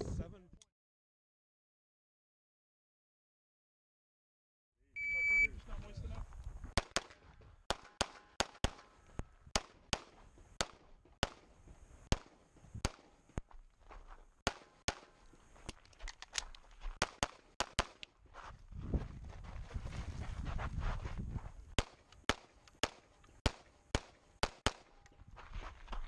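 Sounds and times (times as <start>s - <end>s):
rapid pistol fire: 12.1s - 13.1s, 14.4s - 15.1s, 17.0s - 18.0s, 21.8s - 24.9s
footsteps on gravel: 13.2s - 17.2s, 18.1s - 22.2s, 25.1s - 26.0s.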